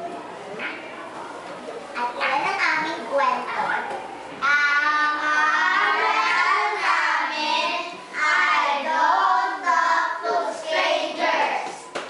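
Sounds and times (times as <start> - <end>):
children singing: 4.5 - 11.8.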